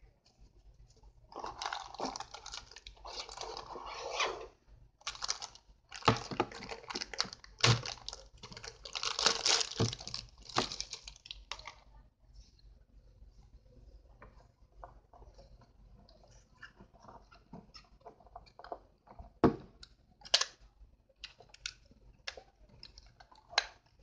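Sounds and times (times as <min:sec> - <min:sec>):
plastic bag and box rustling: 0:01.3 - 0:03.8, 0:05.0 - 0:11.7.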